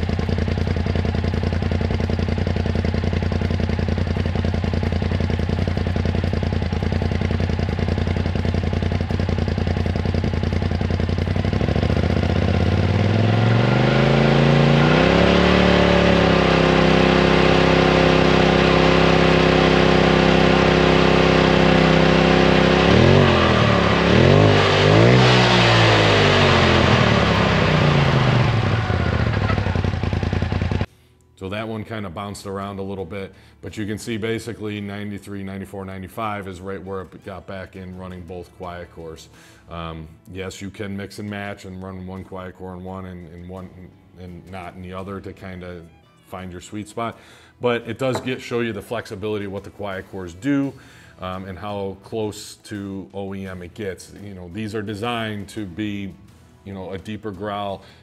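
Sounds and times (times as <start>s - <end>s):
engine idling and revving: 0.0s - 30.9s.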